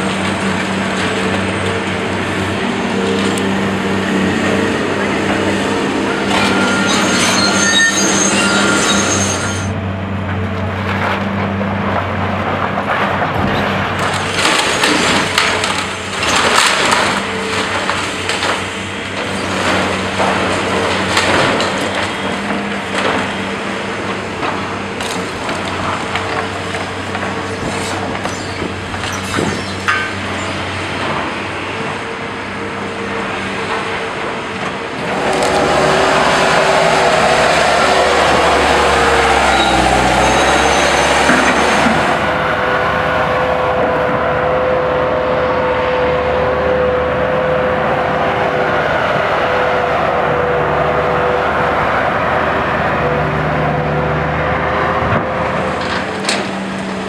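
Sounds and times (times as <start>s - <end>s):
diesel machinery running: 0.0s - 57.0s
debris crashing and clattering: 11.9s - 31.3s.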